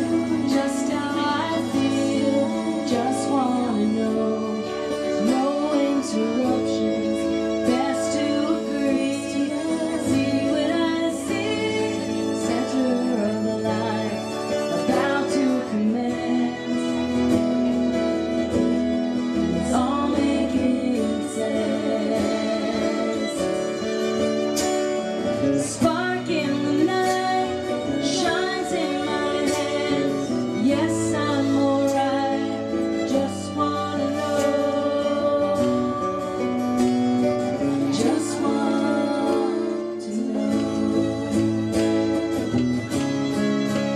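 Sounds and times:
women singing: 0.0 - 17.8, 19.2 - 24.0, 25.4 - 42.2
fiddle: 0.0 - 43.9
strummed acoustic guitar: 0.0 - 43.9.

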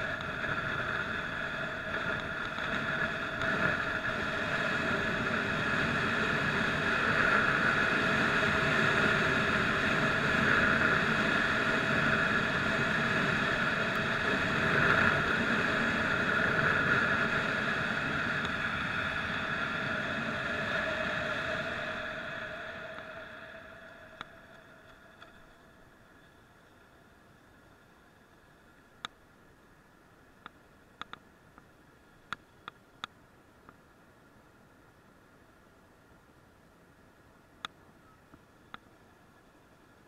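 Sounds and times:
wind rushing over microphone: 0.0 - 25.3.

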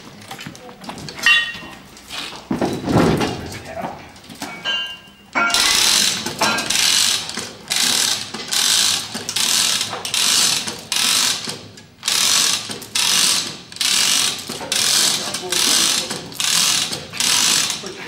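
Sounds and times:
chain rattle and ratchet clicking: 4.5 - 17.9.

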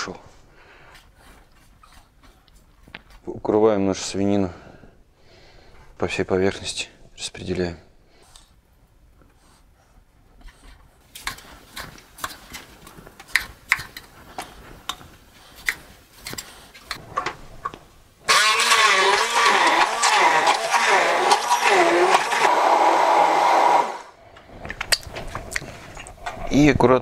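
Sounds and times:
immersion blender running: 18.3 - 24.2.

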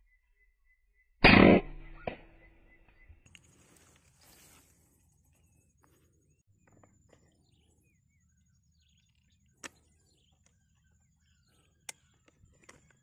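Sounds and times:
birds chirping and whistling: 6.6 - 13.0.

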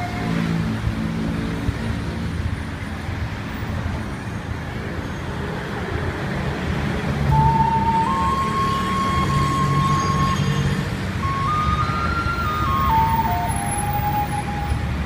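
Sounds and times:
road traffic passing: 0.0 - 15.0
heavy engine hum: 5.6 - 15.0.

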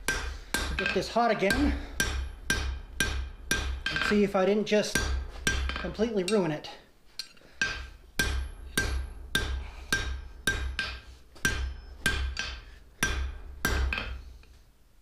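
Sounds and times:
hammer striking steel on anvil: 0.0 - 6.5, 7.2 - 14.4.

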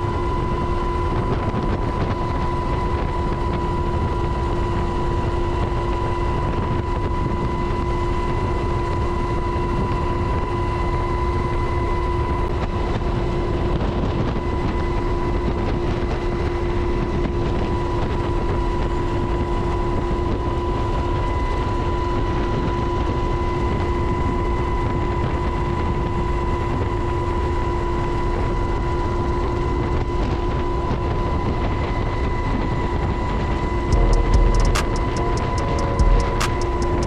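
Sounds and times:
helicopter rotor and wind rush: 0.0 - 37.0
gearbox whine: 32.1 - 37.0
low rumble: 33.7 - 37.0
clicks: 34.0 - 37.0.

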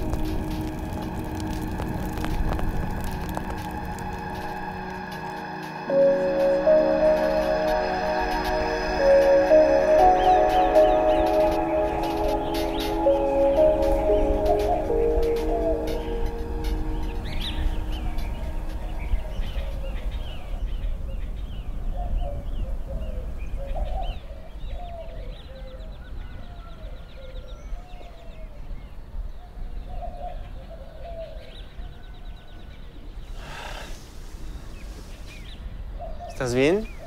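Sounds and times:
rustling noise: 0.0 - 5.9, 33.6 - 35.6
steady low rumble: 0.0 - 20.6
birds chirping and trilling: 0.0 - 37.0.

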